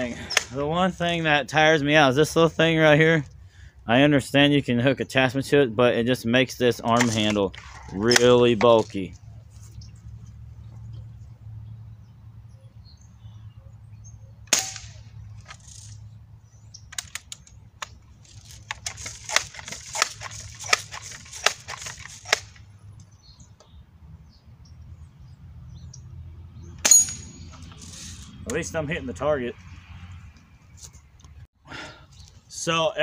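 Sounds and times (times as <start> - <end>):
air rifle shot: 14.5 - 15.1
air rifle pumping with clicks: 15.4 - 16.0, 16.9 - 23.1.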